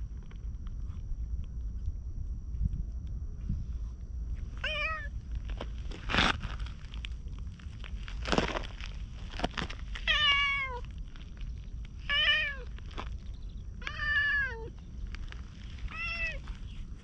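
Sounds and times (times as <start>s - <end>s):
cat meowing: 4.6s - 5.1s, 10.1s - 10.8s, 13.8s - 14.7s, 15.9s - 16.4s.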